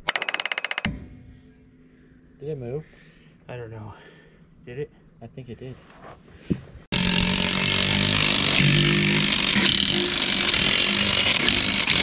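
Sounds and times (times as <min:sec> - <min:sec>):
impact wrench running: 0:00.0 - 0:01.0, 0:06.9 - 0:12.0.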